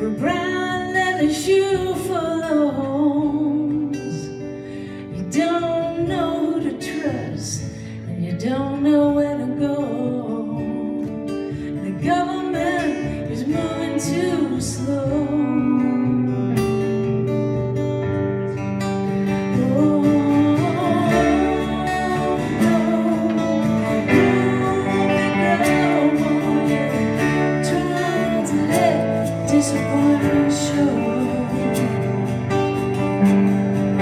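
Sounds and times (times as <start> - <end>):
acoustic guitar strummed: 0.0 - 34.0.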